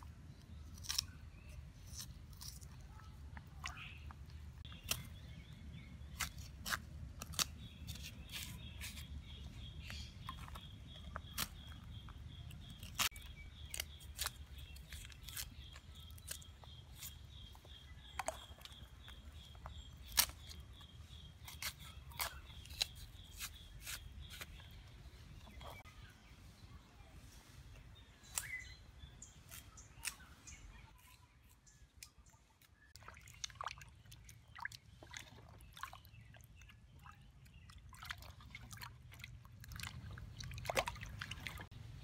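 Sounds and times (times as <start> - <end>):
knife peeling root: 0.3 - 25.7, 28.2 - 32.1.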